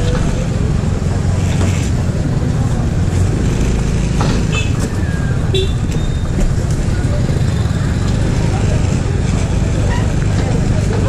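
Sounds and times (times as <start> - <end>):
motor scooter rumble: 0.0 - 11.0
street traffic: 0.0 - 11.0
voices: 0.0 - 11.0.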